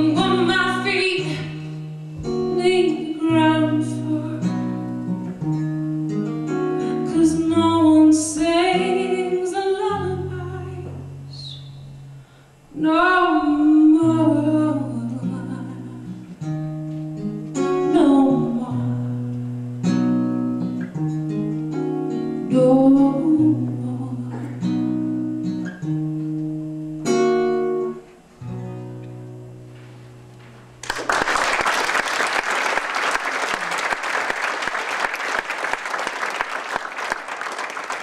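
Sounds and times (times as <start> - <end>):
woman singing: 0.0 - 4.7, 6.9 - 11.6, 12.8 - 16.2, 17.8 - 19.2, 22.5 - 24.8
acoustic guitar strumming: 0.0 - 12.4, 13.2 - 30.8
audience applause: 30.8 - 38.0.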